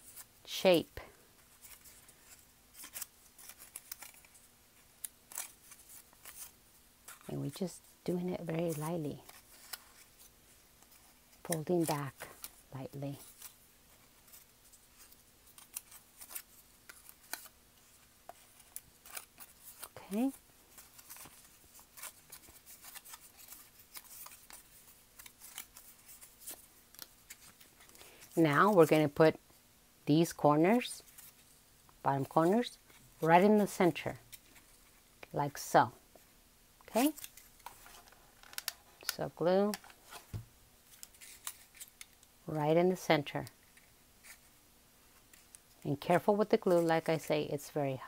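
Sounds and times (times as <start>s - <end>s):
paper rustling and crinkling: 1.4s - 7.8s, 8.6s - 29.0s, 37.0s - 39.1s, 39.7s - 42.3s.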